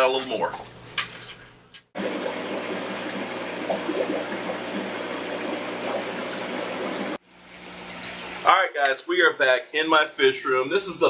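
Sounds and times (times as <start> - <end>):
aquarium water trickling: 0.0 - 8.7.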